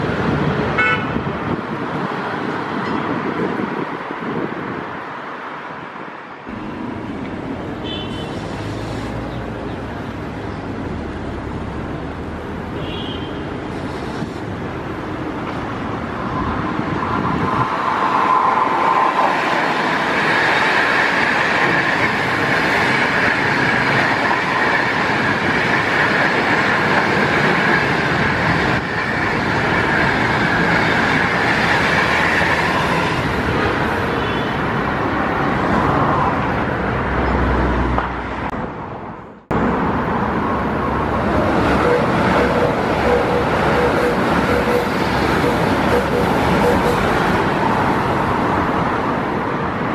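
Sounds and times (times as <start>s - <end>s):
train passing at speed: 0.0s - 12.8s, 13.4s - 49.9s
high whine: 41.7s - 47.4s.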